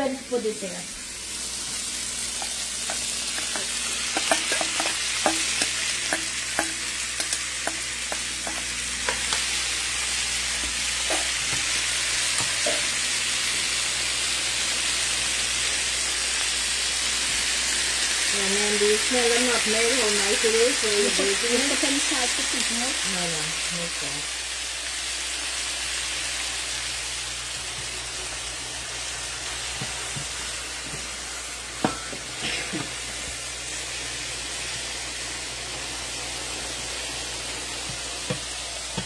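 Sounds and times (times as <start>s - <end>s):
shrimp sizzling in oil: 0.0s - 39.0s
utensil clicking against pan: 2.4s - 9.5s.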